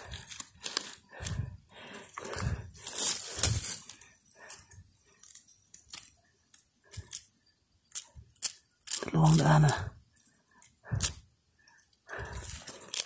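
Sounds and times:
fingers crumbling rotten wood: 0.0 - 1.4, 2.1 - 10.3.

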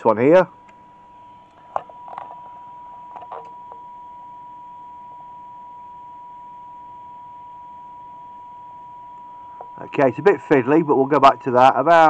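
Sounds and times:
steady test tone: 9.3 - 12.0.

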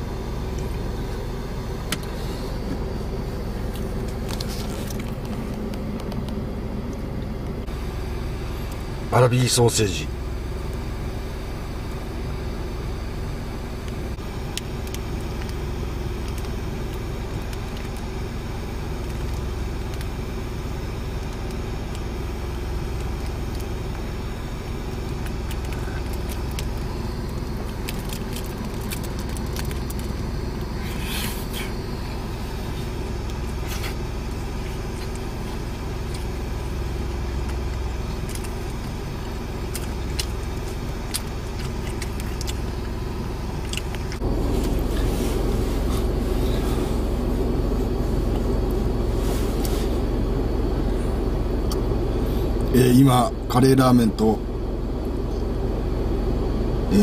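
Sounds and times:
car engine idling: 0.0 - 57.0
plastic wrapper crinkling: 25.2 - 30.3.

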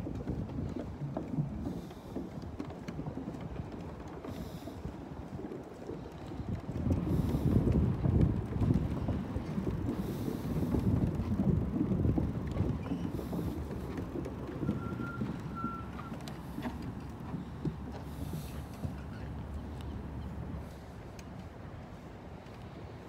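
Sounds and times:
wind buffeting microphone: 0.0 - 23.0
short faint beeps: 14.6 - 16.2.

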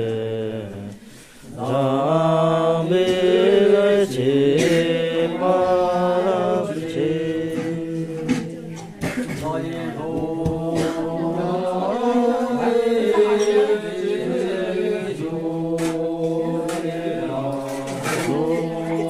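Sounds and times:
voices chanting long notes: 0.0 - 8.7, 9.6 - 19.0.

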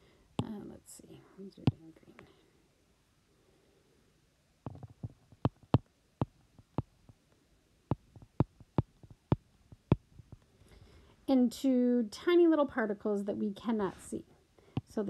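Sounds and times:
stylus tapping on glass screen: 7.9 - 10.0.

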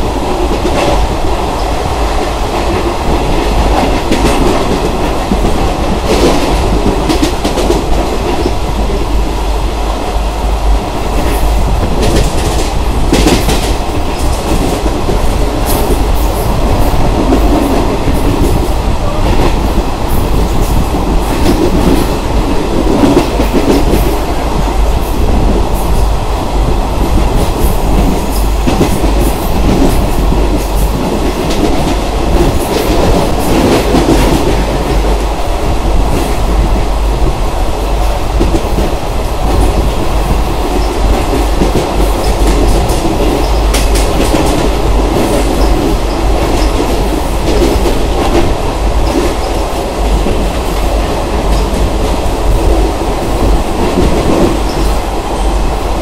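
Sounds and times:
train steady rumble: 0.0 - 56.0
train wheels clacking over rail joints: 2.5 - 9.0, 11.1 - 26.1, 38.0 - 55.5.

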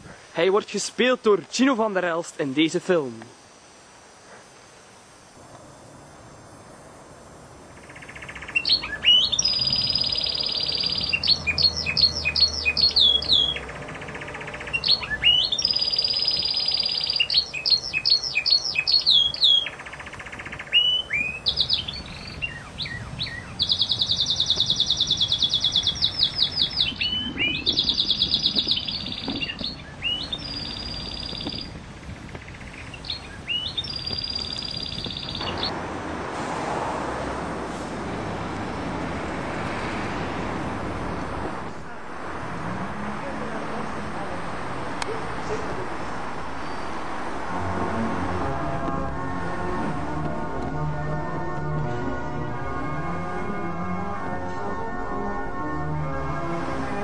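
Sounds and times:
songbird trilling and whistling: 7.8 - 35.7.

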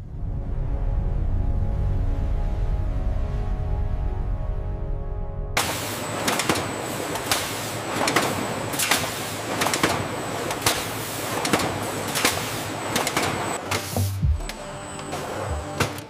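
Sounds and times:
machinery clattering: 5.6 - 16.0
sharp machine clack: 5.6 - 16.0.

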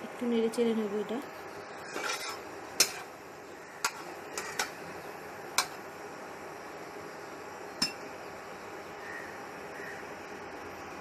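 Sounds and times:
metal spatula tapping pan: 3.8 - 4.8, 5.6 - 5.8.

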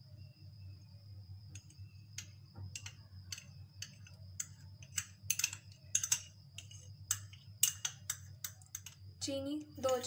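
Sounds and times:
metal spoon scraping glass bowl: 4.8 - 8.0.

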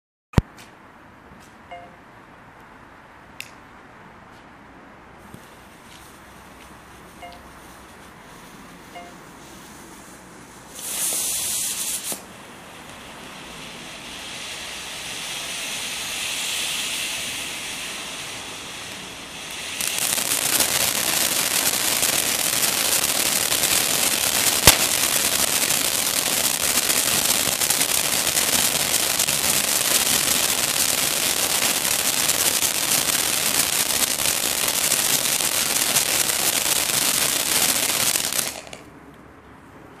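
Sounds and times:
firework fountains hissing: 7.2 - 38.9
sharp firework crack: 8.9 - 38.9.

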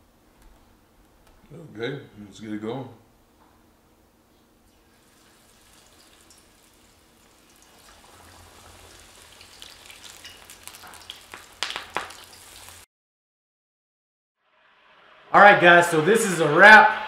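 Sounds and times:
onion rings sizzling in oil: 4.7 - 12.9
loud sharp pops: 11.3 - 12.2.

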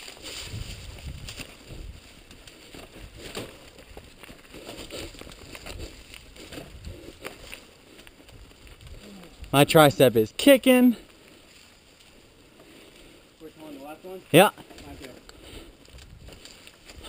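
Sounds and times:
bike rattling over bumps: 0.0 - 9.0
bike tyres rolling on dirt: 0.0 - 17.0.

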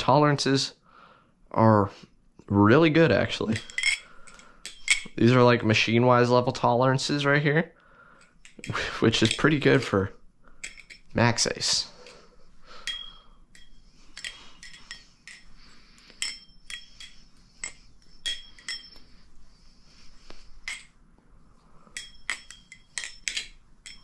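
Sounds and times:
high metallic ring: 3.6 - 5.1, 12.0 - 19.4, 21.8 - 24.0.

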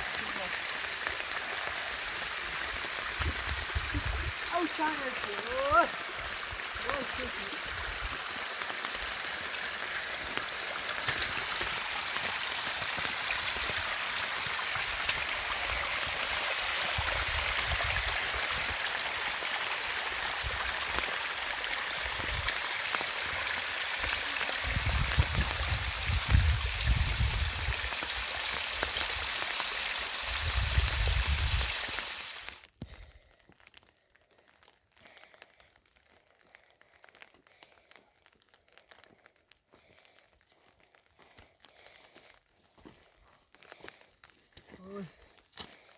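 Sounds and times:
rain and running water: 0.0 - 45.9.

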